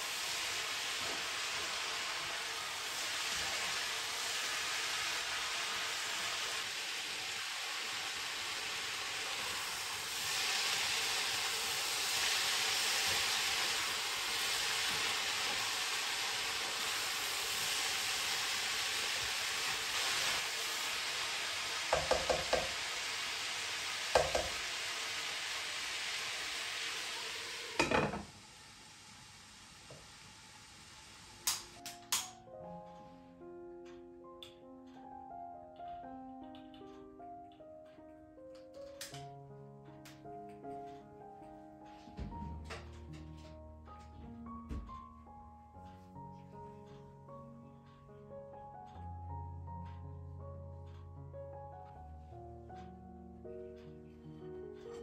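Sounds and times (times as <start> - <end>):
food sizzling in frying pan: 0.0 - 32.3
utensil knocking against pan: 21.9 - 22.8, 24.1 - 24.6, 27.8 - 28.3.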